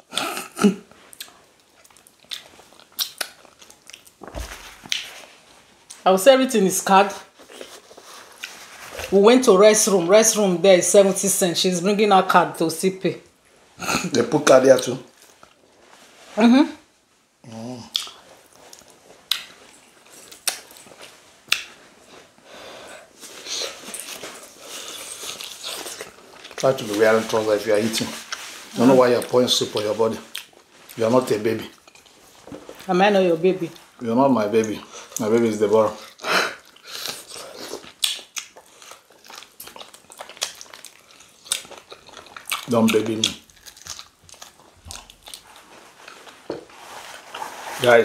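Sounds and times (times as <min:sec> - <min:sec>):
wet chewing and lip smacks: 0:01.1 - 0:05.2, 0:17.9 - 0:21.8, 0:36.0 - 0:46.6.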